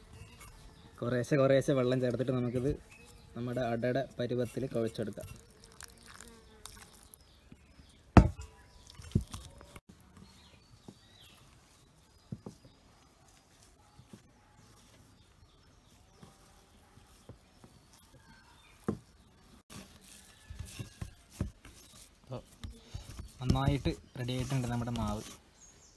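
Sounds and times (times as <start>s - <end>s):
hands kneading dough: 8.8s - 25.5s.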